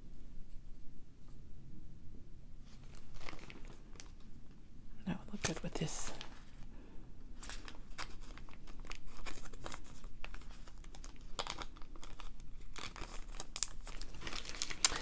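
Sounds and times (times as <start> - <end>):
plastic bag crinkling: 2.7 - 4.3, 5.1 - 6.7, 7.3 - 15.0.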